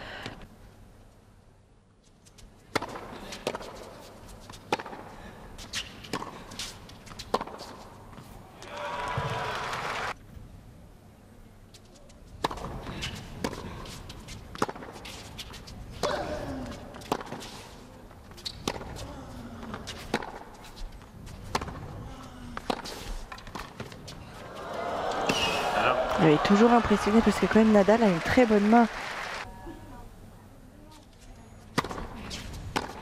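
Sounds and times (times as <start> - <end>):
tennis ball hitting racquets: 2.7 - 5.1, 5.7 - 7.9, 12.4 - 16.2, 17.0 - 17.6, 18.5 - 19.0, 19.6 - 20.7, 21.4 - 21.9, 22.6 - 24.5, 31.7 - 33.0.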